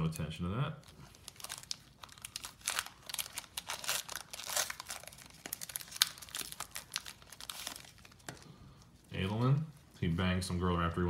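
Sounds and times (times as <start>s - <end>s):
foil wrapper crinkling and tearing: 0.8s - 9.6s.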